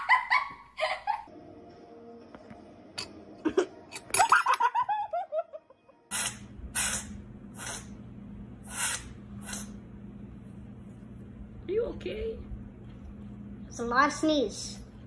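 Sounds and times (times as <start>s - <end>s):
person laughing: 0.0s - 1.3s, 3.4s - 5.8s
kitten sneezing: 6.1s - 7.9s, 8.7s - 9.8s.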